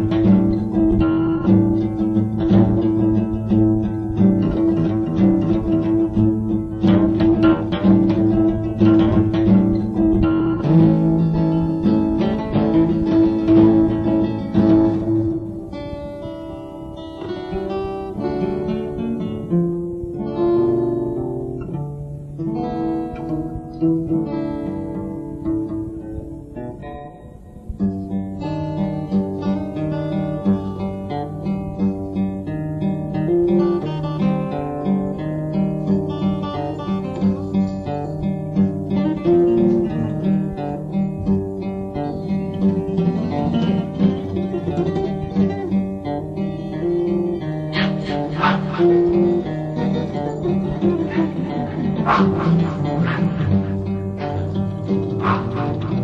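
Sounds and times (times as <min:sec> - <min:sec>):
acoustic guitar playing: 0:00.0 - 0:56.0.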